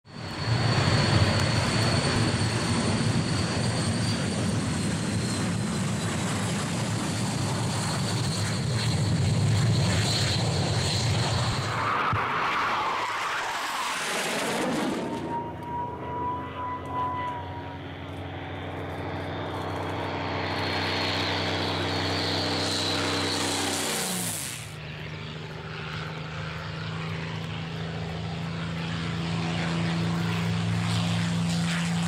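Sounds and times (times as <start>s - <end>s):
jet aircraft engine rumble: 0.1s - 32.0s
steady higher tone: 14.6s - 24.4s.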